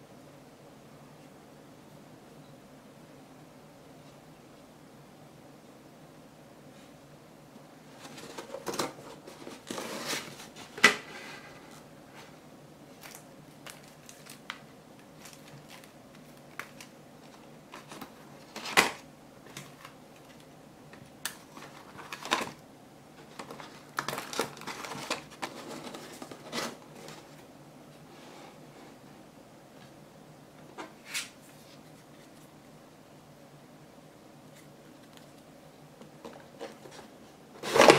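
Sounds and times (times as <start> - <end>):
card rustling and scraping: 7.9 - 12.4, 15.1 - 20.5, 21.4 - 22.6, 23.2 - 27.4, 36.2 - 37.9.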